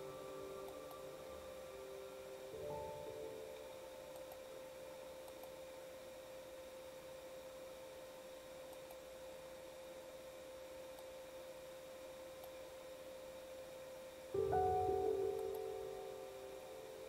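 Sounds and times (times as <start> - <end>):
faint steady hum: 0.0 - 17.0
faint ticks: 5.2 - 5.6, 8.7 - 9.0.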